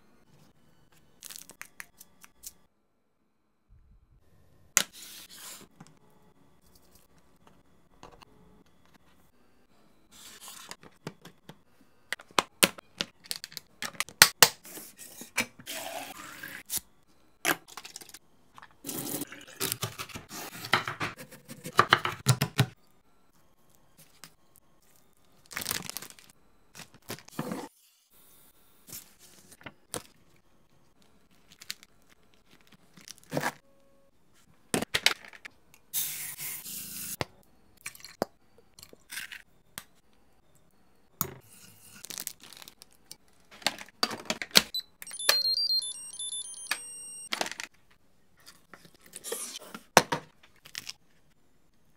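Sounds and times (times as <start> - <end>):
plastic wrap crinkling and tearing: 25.4 - 27.2, 42.0 - 43.0.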